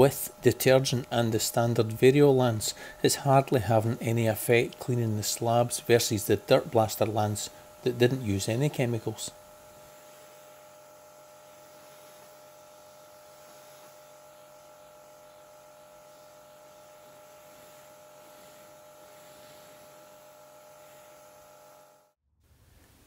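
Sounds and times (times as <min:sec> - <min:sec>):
pressure washer motor hum: 0:00.0 - 0:22.1
spray jet hissing on paving: 0:11.2 - 0:20.1.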